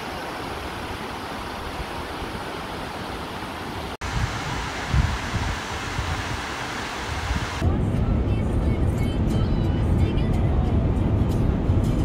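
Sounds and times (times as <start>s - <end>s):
waterfall rushing: 0.0s - 7.6s.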